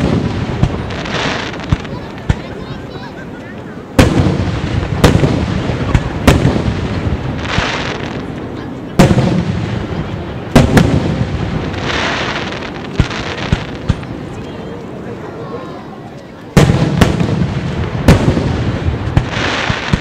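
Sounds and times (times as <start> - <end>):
firework shells booming: 0.0 - 2.6, 4.0 - 8.3, 9.0 - 14.1, 16.6 - 20.0
hissing crackle of fireworks: 0.0 - 20.0.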